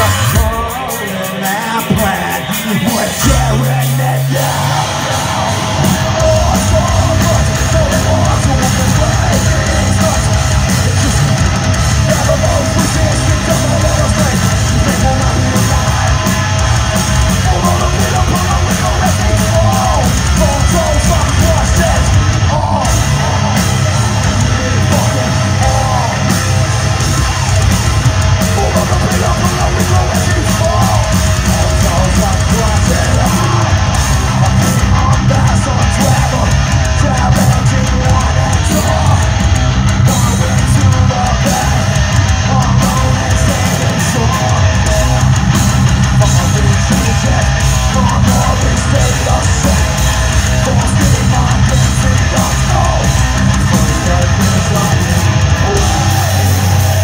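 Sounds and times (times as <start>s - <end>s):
distorted electric guitars: 0.0s - 57.0s
drum kit: 0.0s - 57.0s.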